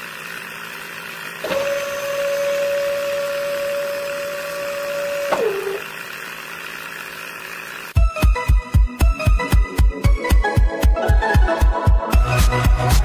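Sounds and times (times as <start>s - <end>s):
small electric motor whining: 0.0s - 8.0s.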